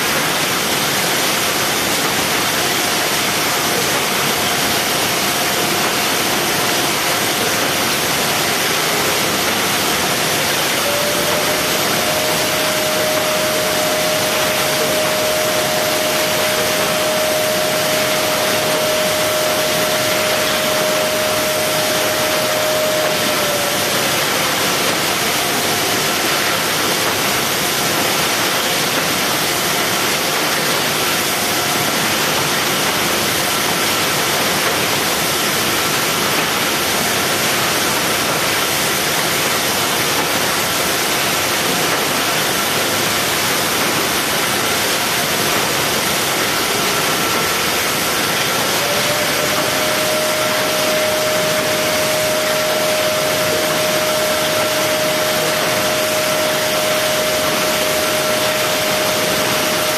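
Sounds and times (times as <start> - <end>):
machine line and conveyors: 0.0 - 59.9
motor whine: 10.3 - 25.9, 48.6 - 59.9.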